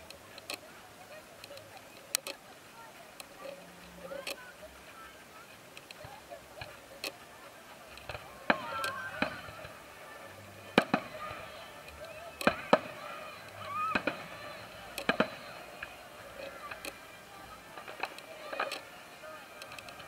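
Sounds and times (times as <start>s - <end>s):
fireworks bangs: 8.0s - 10.0s, 10.6s - 19.2s.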